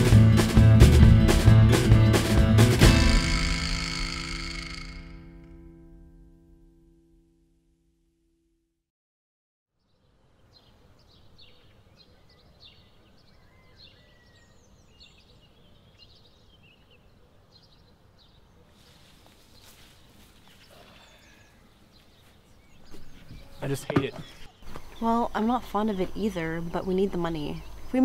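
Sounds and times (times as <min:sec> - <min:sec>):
small birds chirping: 0:09.7 - 0:28.0
rustling and brushing: 0:18.7 - 0:21.0.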